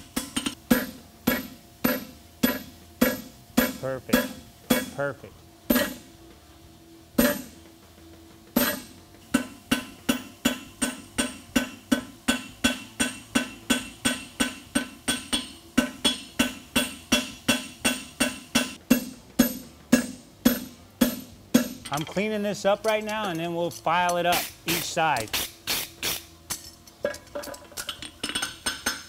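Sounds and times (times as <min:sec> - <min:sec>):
hammer striking metal on anvil: 0:00.0 - 0:05.1, 0:05.7 - 0:06.1, 0:07.2 - 0:07.6, 0:08.6 - 0:25.5.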